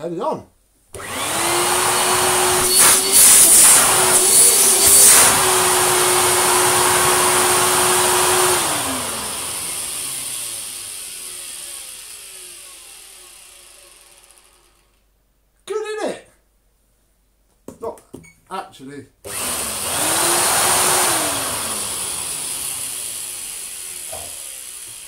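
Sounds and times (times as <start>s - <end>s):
vacuum cleaner whining: 0.9s - 15.0s, 19.3s - 25.0s
vacuum motor winding down: 1.0s - 15.0s, 19.3s - 25.0s.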